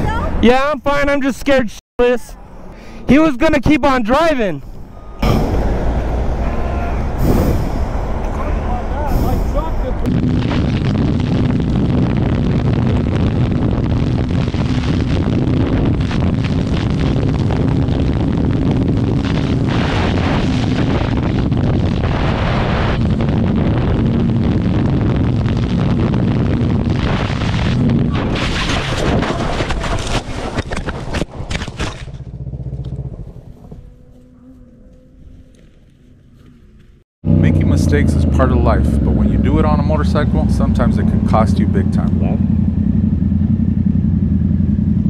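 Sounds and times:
heavy wind noise: 4.5 - 31.5
motorcycle engine at speed: 11.0 - 22.1, 31.5 - 36.5, 37.2 - 45.0
motorcycle crashing into brush: 27.0 - 33.1.

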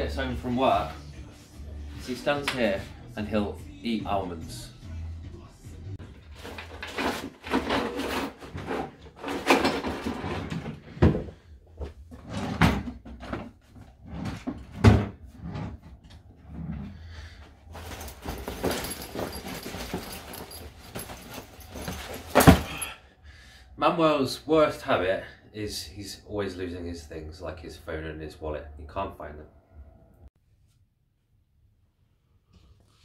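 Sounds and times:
drawers opening and shutting: 6.0 - 17.0, 17.7 - 22.8
loose things rattling: 6.1 - 11.4, 17.7 - 22.9
rummaging in fabric backpack: 17.6 - 22.9.

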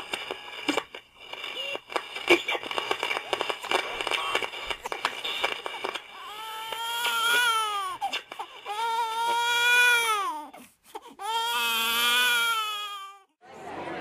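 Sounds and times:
crackling clicks: 0.0 - 9.6
infant crying: 6.2 - 13.4.

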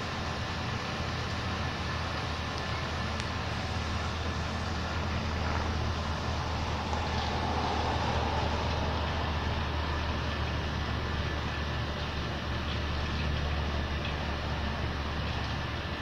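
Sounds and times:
low mechanical hum: 0.0 - 16.0
background rush: 2.3 - 12.0.

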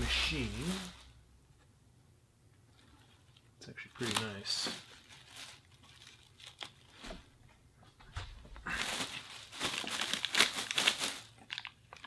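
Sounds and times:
plastic bag crinkling: 0.0 - 1.2, 2.7 - 7.2, 8.6 - 12.0.

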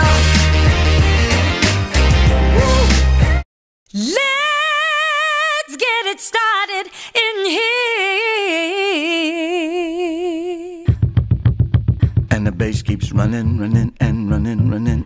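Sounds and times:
woman singing with vibrato: 4.0 - 11.0.

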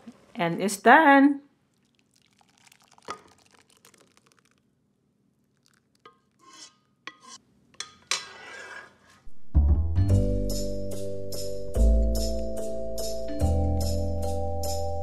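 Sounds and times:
soup pouring into bowl: 1.7 - 4.8, 5.4 - 6.7
metal ladle clinking on pan: 6.1 - 8.4.

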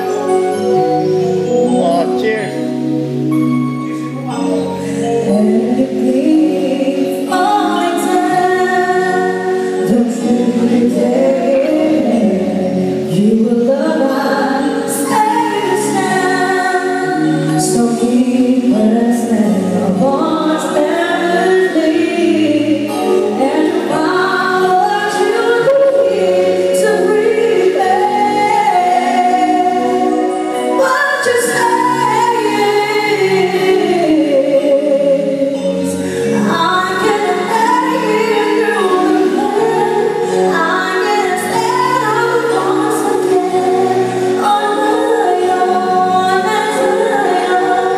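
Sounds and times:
band playing: 0.0 - 6.4
woman singing a ballad: 4.3 - 47.9.

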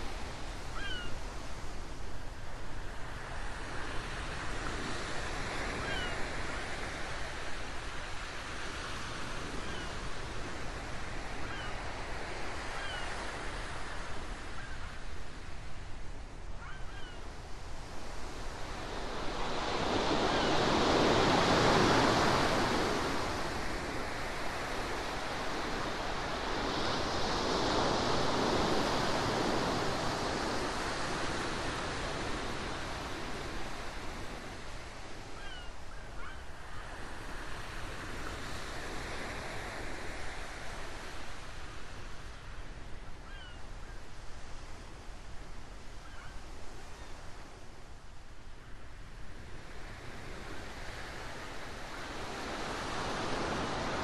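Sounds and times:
ocean waves breaking: 18.4 - 34.7.

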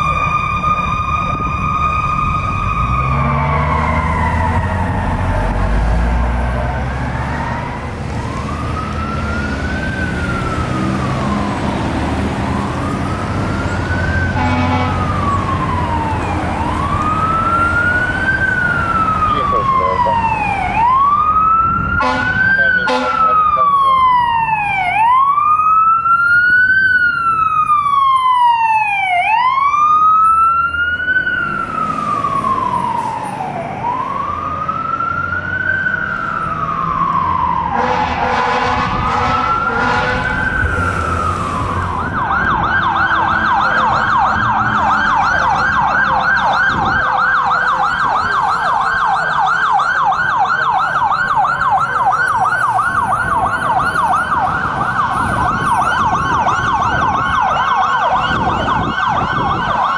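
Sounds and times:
fire truck siren wailing: 0.0 - 59.9
siren fast yelp: 12.8 - 59.9.

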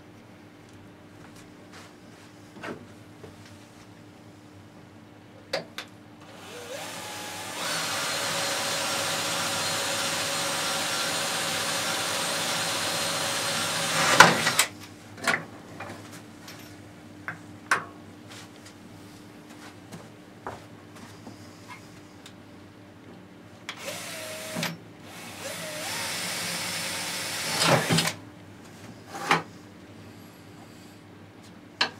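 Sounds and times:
electric drill boring into metal: 6.3 - 14.7, 23.8 - 28.2.

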